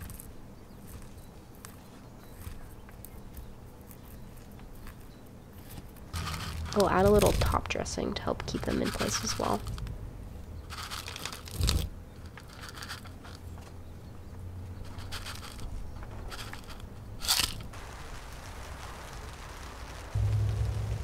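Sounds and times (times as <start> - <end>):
crunching scrapes: 0.0 - 17.8
gravel trickling and rattling: 0.0 - 21.0
low rumble: 9.2 - 10.7, 15.8 - 21.0.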